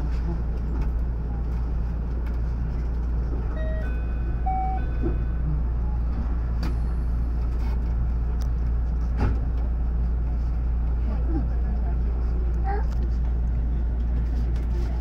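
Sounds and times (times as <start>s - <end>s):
electric train humming: 0.0s - 14.9s
electronic chime: 3.6s - 5.0s.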